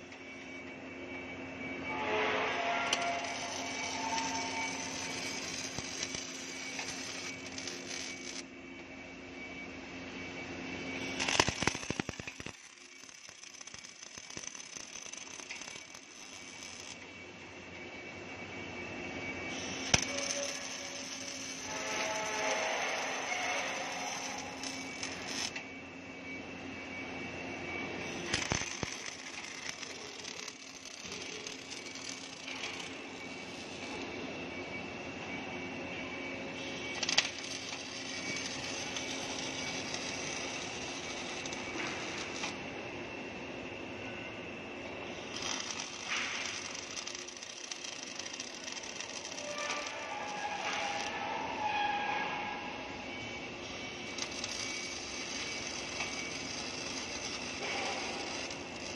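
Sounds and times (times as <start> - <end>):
machine hum: 0.0 - 58.9
welding arc crackling and hissing: 2.0 - 8.5, 11.0 - 17.3, 19.5 - 25.6, 27.8 - 34.0, 36.6 - 42.6, 44.9 - 52.0, 52.8 - 58.9.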